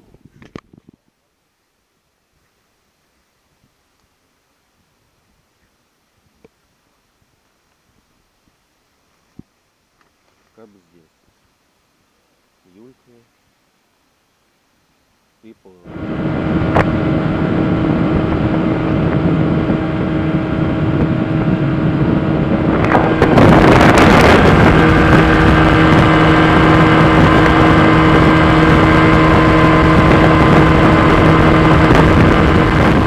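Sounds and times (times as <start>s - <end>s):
wind on microphone: 0.0s - 1.2s, 15.9s - 33.0s
outboard motor running: 15.8s - 33.0s.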